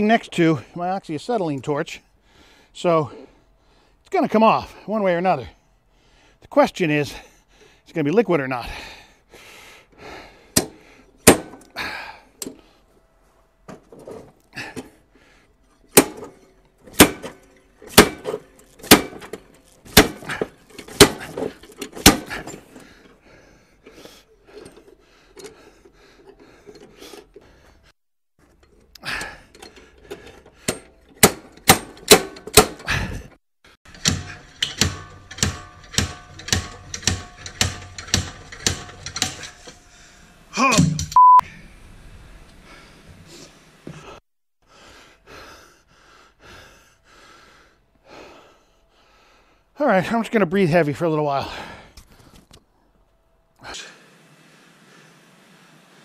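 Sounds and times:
slide hammer metallic clanks: 0:15.8 - 0:22.8, 0:28.5 - 0:32.9, 0:33.9 - 0:39.8.

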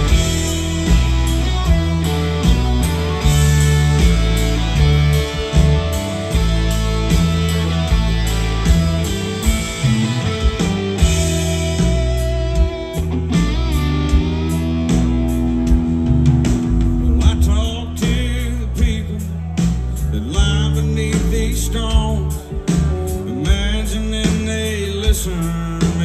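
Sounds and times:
rock band playing: 0:00.0 - 0:26.0.

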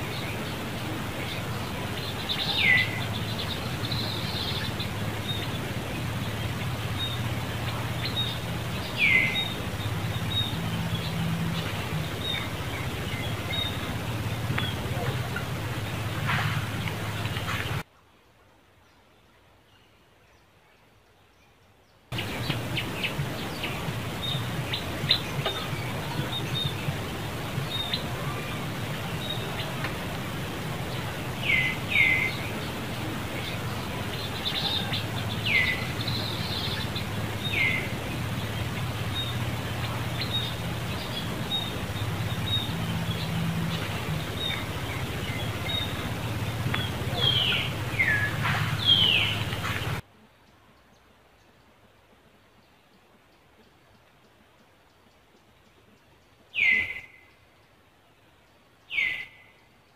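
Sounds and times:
steady low hum: 0:00.0 - 0:17.8, 0:22.1 - 0:50.0.

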